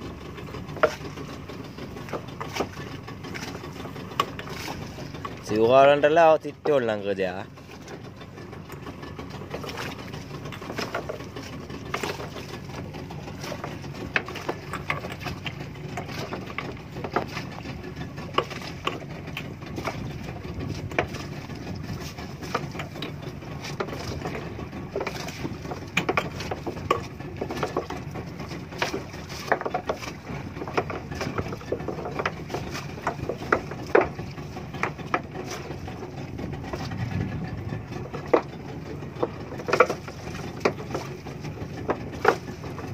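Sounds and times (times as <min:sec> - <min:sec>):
boat engine running: 0:00.0 - 0:42.9
net knocking on wooden boat side: 0:28.8 - 0:36.1.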